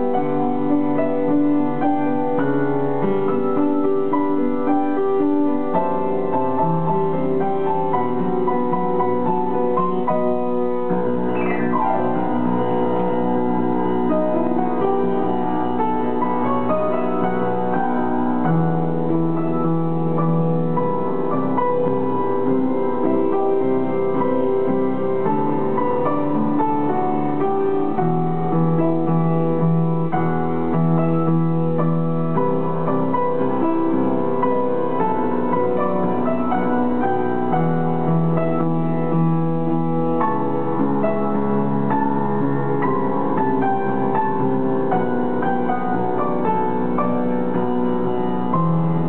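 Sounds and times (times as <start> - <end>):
upright piano melody: 0.0 - 49.0.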